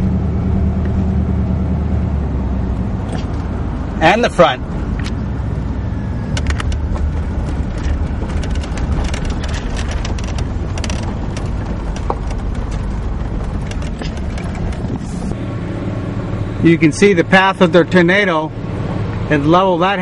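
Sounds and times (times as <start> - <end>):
vehicle road and engine rumble: 0.0 - 20.0
short clicks and rattles: 6.3 - 15.1.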